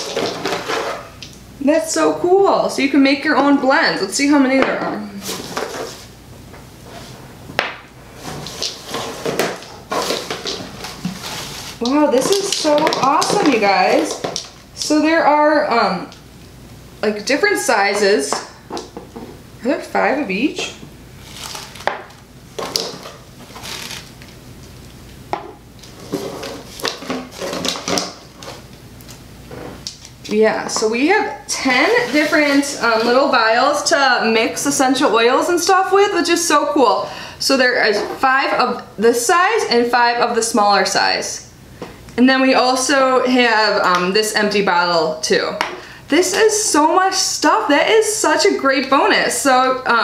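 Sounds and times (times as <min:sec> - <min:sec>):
rustling: 0:08.0 - 0:14.6, 0:21.2 - 0:22.0, 0:22.6 - 0:24.8.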